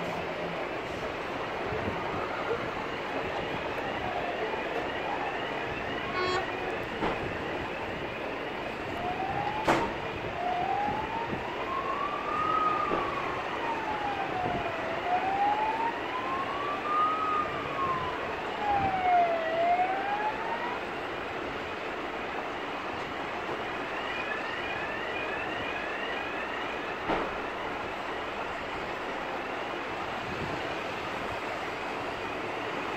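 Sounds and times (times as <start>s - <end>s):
road traffic: 0.0s - 32.9s
wailing siren: 0.0s - 32.9s
yelping siren: 1.6s - 21.0s, 23.7s - 28.5s.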